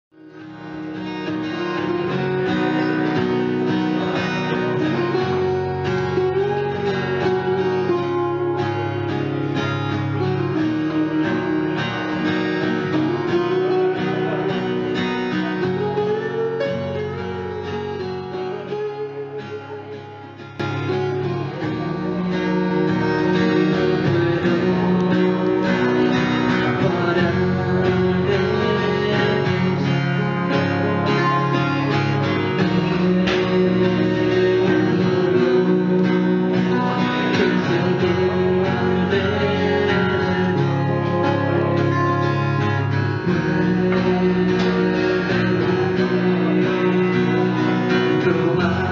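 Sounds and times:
acoustic guitars strumming: 0:00.1 - 0:48.9
man singing: 0:10.1 - 0:48.9.

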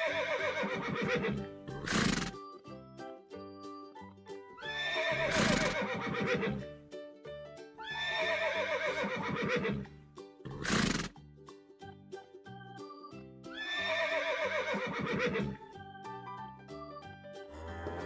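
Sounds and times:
horse whinnying: 0:00.0 - 0:02.4, 0:04.6 - 0:06.6, 0:07.8 - 0:09.9, 0:10.5 - 0:11.1, 0:13.5 - 0:15.6, 0:17.5 - 0:18.0
light background music: 0:00.0 - 0:18.0.

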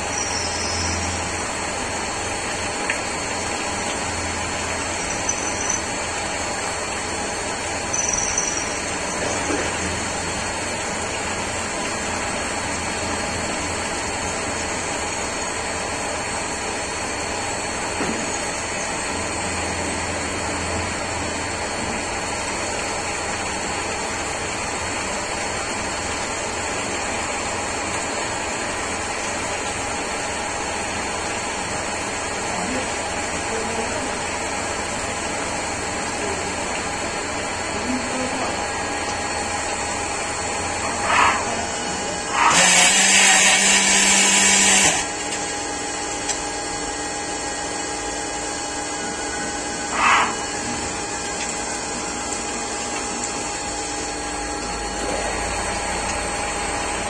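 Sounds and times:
coolant splashing: 0:00.0 - 0:57.0
high machine whine: 0:00.0 - 0:57.0
lathe machine hum: 0:25.5 - 0:57.0.

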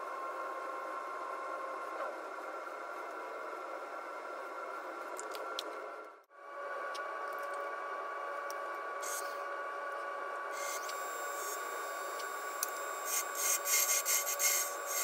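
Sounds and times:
wood lathe humming and whining: 0:10.4 - 0:15.0.

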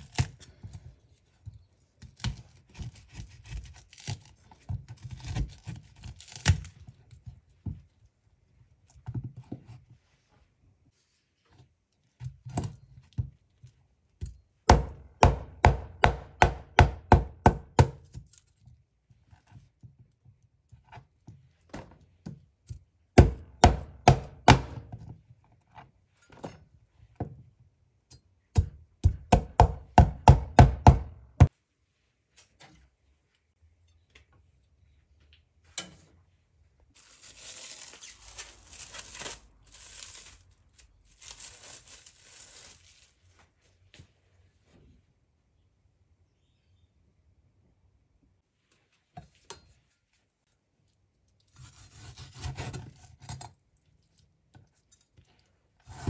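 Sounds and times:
cleaver chopping on wooden board: 0:14.7 - 0:18.0, 0:23.2 - 0:24.8, 0:28.6 - 0:31.5.

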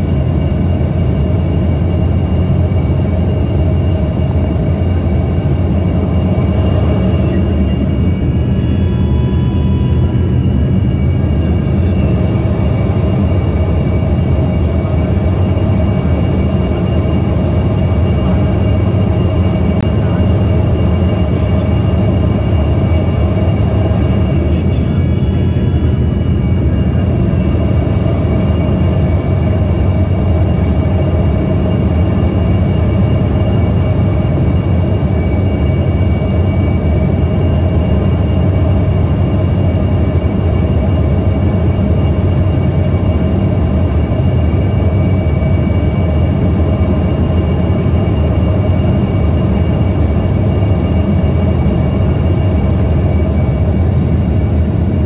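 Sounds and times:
faint steady whining tones: 0:00.0 - 0:55.0
low rumble of engines and air: 0:00.0 - 0:55.0.

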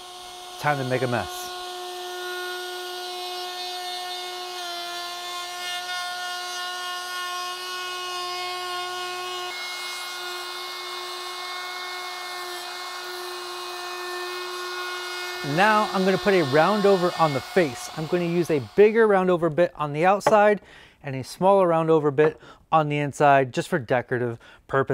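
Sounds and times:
router motor whine: 0:00.0 - 0:19.1
router bit cutting wood: 0:00.0 - 0:19.6.

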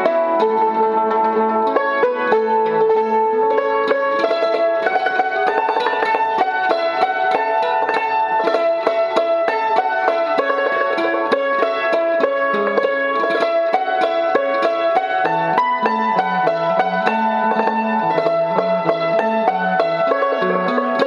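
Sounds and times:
hammered dulcimer: 0:00.0 - 0:21.0
plucked zither: 0:00.0 - 0:21.0.

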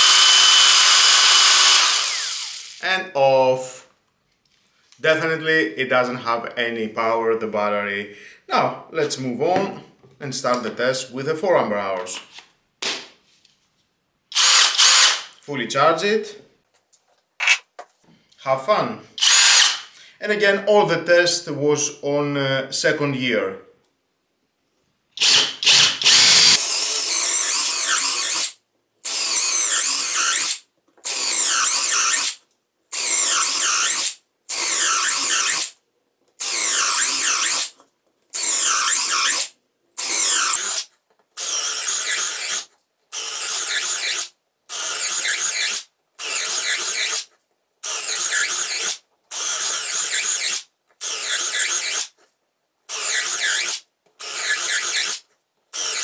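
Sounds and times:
cordless drill drilling: 0:00.0 - 0:02.8, 0:14.3 - 0:15.3, 0:19.2 - 0:19.9, 0:25.2 - 0:35.7, 0:36.4 - 0:37.7, 0:38.4 - 0:40.8, 0:41.4 - 0:52.2, 0:52.9 - 0:55.2, 0:55.8 - 0:56.0.

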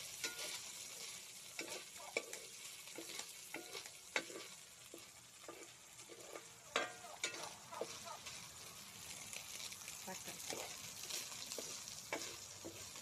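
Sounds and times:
meat sizzling in hot oil: 0:00.0 - 0:13.0
metal ladle scraping and clinking: 0:00.2 - 0:08.0, 0:10.5 - 0:13.0.

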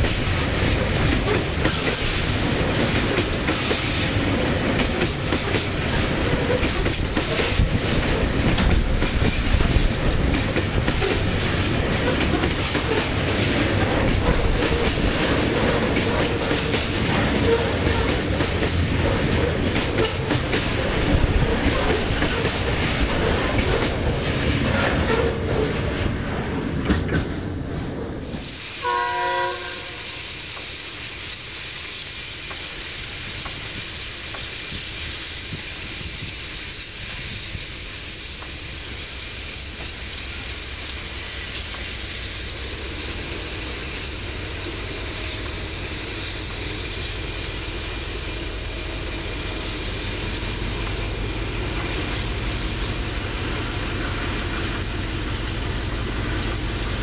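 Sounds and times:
diesel locomotive rumble: 0:00.0 - 0:57.0
train horn: 0:28.8 - 0:30.2.

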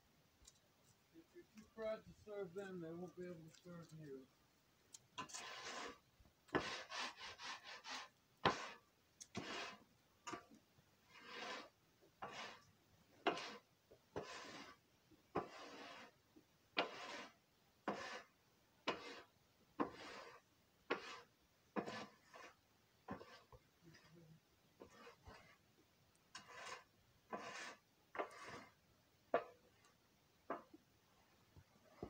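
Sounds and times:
tool scraping stall floor: 0:05.2 - 0:08.8, 0:09.4 - 0:10.4, 0:11.1 - 0:12.6, 0:13.2 - 0:13.6, 0:14.2 - 0:16.1, 0:16.8 - 0:18.3, 0:18.9 - 0:24.1, 0:24.8 - 0:25.6, 0:26.4 - 0:29.6.

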